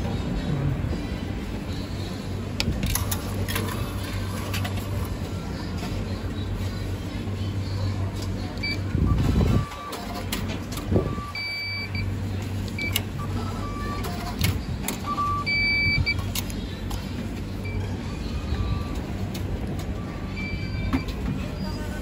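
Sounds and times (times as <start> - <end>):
vending machine beeps: 7.6 - 16.5, 17.5 - 22.0.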